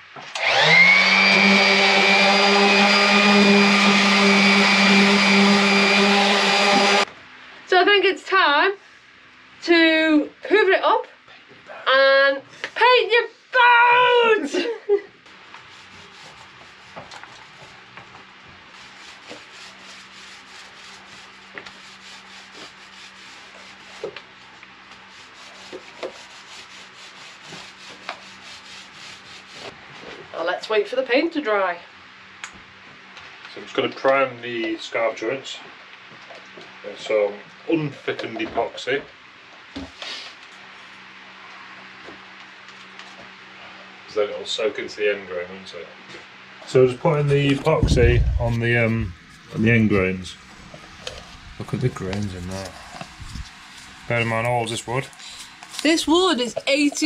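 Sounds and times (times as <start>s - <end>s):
orbital sander sanding wood: 0.4s - 7.1s, 18.7s - 29.7s
paint roller rubbing on wood: 1.3s - 7.1s, 15.3s - 29.8s, 50.7s - 57.0s.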